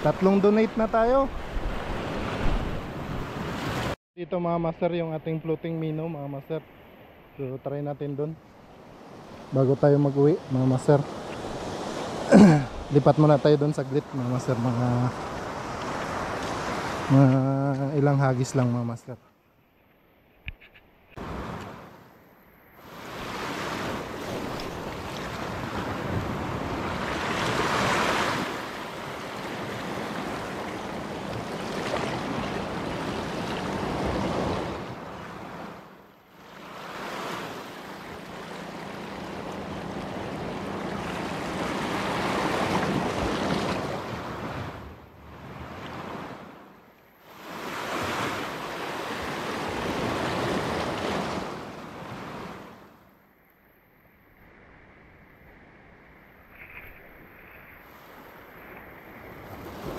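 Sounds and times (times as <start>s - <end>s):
sea waves breaking over rocks: 22.8s - 52.9s, 56.6s - 59.9s.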